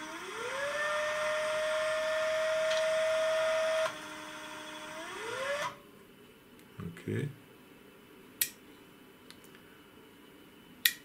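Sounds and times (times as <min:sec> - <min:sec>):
stepper motor whine: 0:00.0 - 0:05.8.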